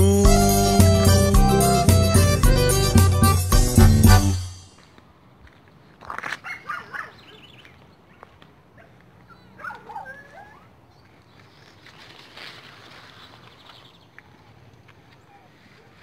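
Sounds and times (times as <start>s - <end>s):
dogs barking and yelping: 6.4s - 7.4s, 8.8s - 10.7s.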